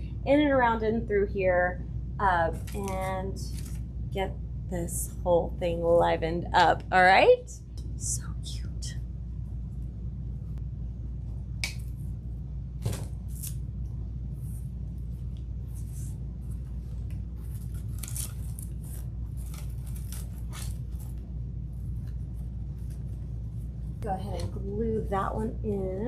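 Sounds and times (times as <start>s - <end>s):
steady low hum: 0.0s - 26.0s
rustling and scratching of wire stems: 15.8s - 21.2s.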